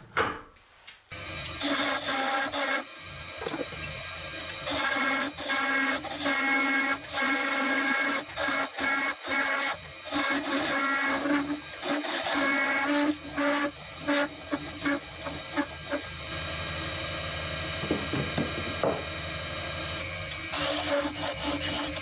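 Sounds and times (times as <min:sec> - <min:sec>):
turning tool cutting wood: 0:01.1 - 0:22.0
wood lathe humming: 0:01.1 - 0:22.0.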